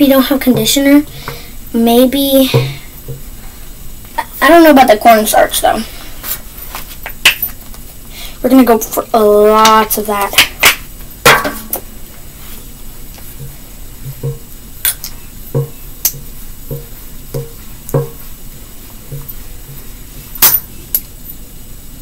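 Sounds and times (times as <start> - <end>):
utensil knocking against metal bowl: 15.6 - 18.2.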